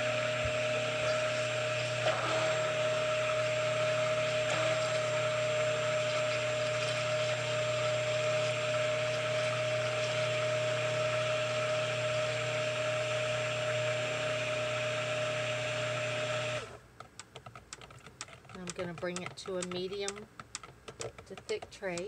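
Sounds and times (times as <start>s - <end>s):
stick blender whining: 0.0s - 16.8s.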